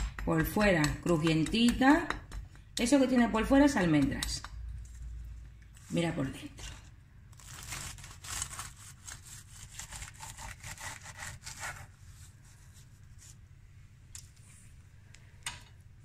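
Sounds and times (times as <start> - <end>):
crust crackling and crunching: 6.7 - 10.1
bread knife sawing through pastry: 7.4 - 12.2.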